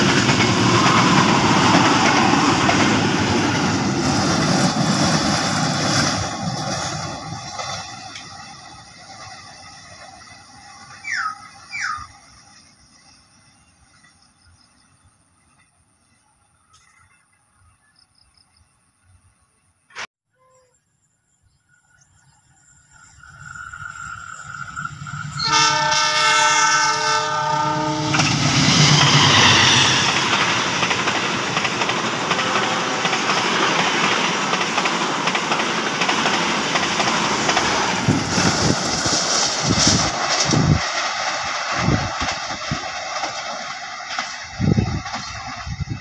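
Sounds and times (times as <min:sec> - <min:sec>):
wheels clacking over rail joints: 0:00.0 - 0:11.9, 0:28.0 - 0:46.0
train rumbling past: 0:00.0 - 0:16.4, 0:21.8 - 0:46.0
locomotive air horn blast: 0:25.4 - 0:28.4.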